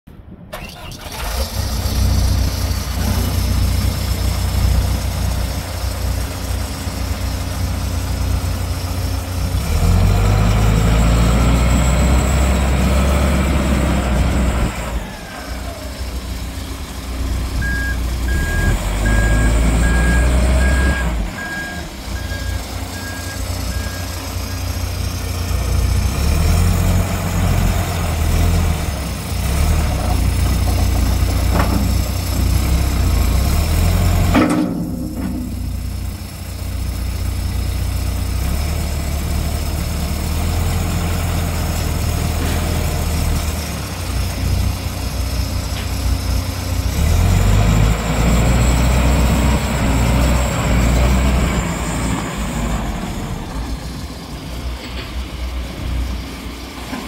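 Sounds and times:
diesel engine revving: 0.2 - 57.0
backup alarm beeping: 17.6 - 24.2.

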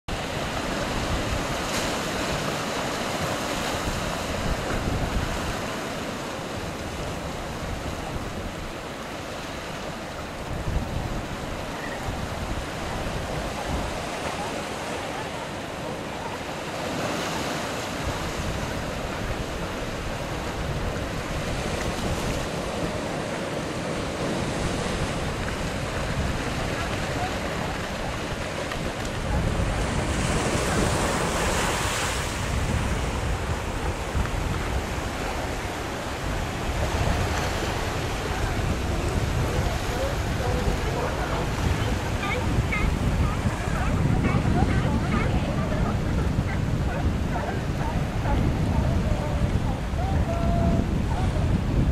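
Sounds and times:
ocean surf washing around rocks: 0.1 - 51.9
wind rumbling on microphone: 0.1 - 51.9.

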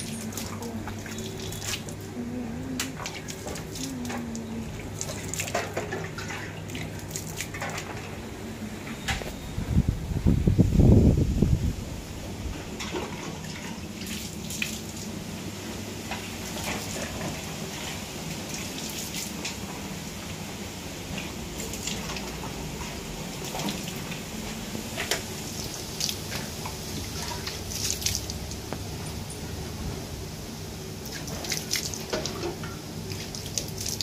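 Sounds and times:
water splashing into steel bucket: 0.0 - 2.0, 2.8 - 8.0, 25.0 - 28.6.

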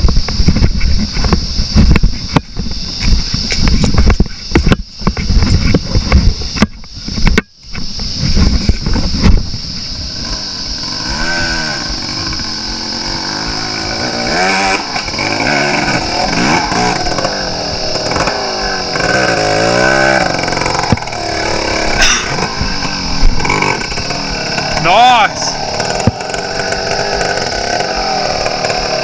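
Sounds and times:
dirt bike engine revving: 8.2 - 29.0.

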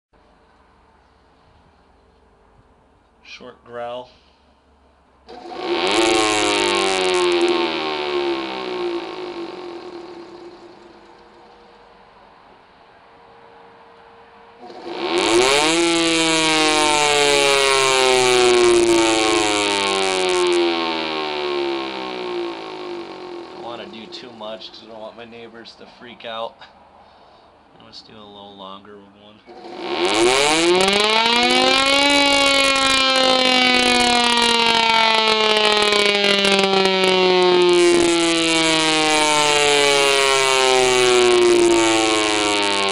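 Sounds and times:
siren motor winding up: 5.3 - 11.8, 14.6 - 25.1, 29.4 - 42.9.

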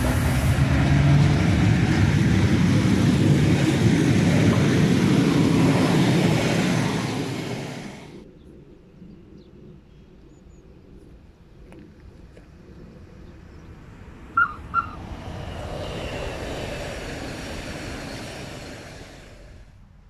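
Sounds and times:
train wheels rumbling on rail: 0.0 - 8.3, 13.9 - 19.8.

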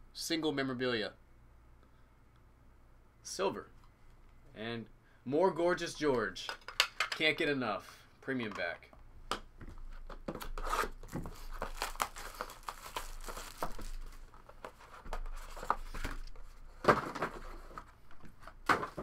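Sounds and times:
plastic shrink wrap tearing: 10.6 - 14.5.

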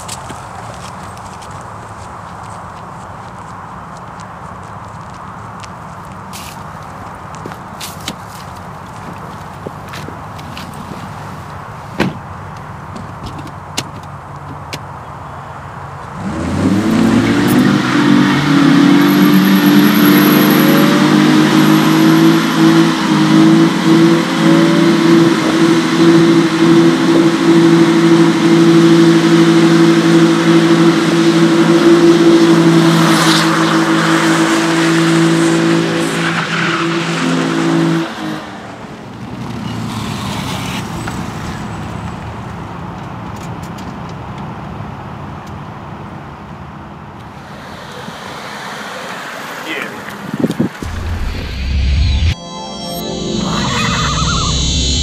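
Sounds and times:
car engine revving high: 16.1 - 38.4, 50.8 - 55.0.

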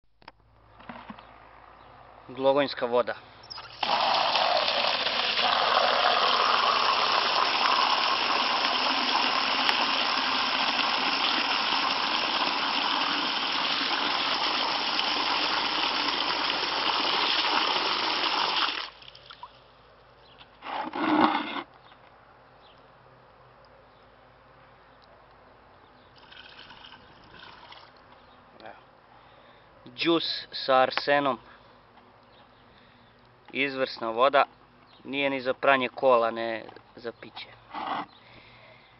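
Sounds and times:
water pouring into plastic basin: 3.6 - 19.5, 26.2 - 28.0.

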